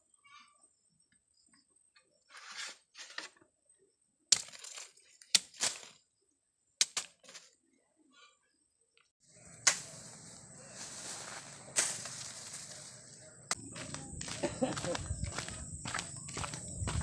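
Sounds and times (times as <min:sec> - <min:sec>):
bamboo layers cracking: 0:04.3 - 0:06.0, 0:09.6 - 0:10.0, 0:10.8 - 0:13.6.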